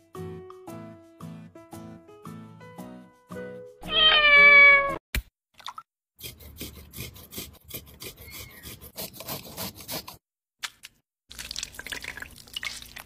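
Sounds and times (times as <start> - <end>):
cat meowing: 3.8 - 5.0
ginger grated on metal grater: 6.2 - 10.2.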